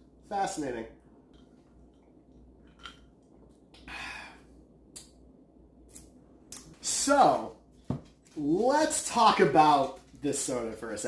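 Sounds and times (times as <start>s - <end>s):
breathy exhale: 3.9s - 4.6s.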